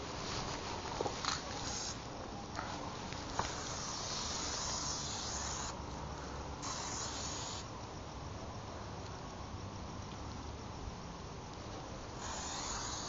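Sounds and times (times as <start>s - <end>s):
spray paint can hissing: 1.2s - 2.0s, 3.5s - 5.8s, 6.6s - 7.7s, 12.2s - 13.0s.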